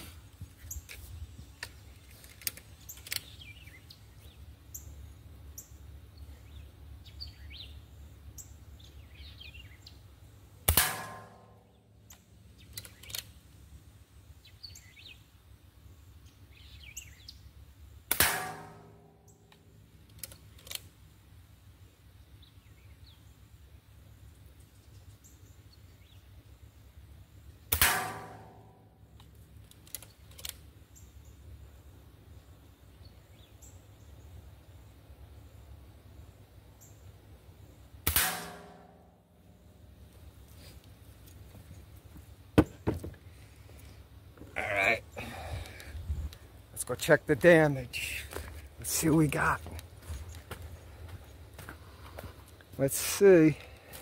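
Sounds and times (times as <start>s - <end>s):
air rifle shots: 10.6s - 11.6s, 18.1s - 19.1s, 27.7s - 28.7s, 38.0s - 39.1s
metal target ringing: 10.7s - 11.7s, 18.1s - 19.2s, 27.8s - 28.9s, 38.1s - 39.2s.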